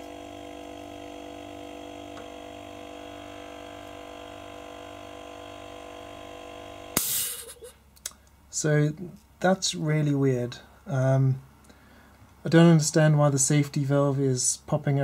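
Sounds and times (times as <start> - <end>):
air compressor humming: 0.0 - 7.8.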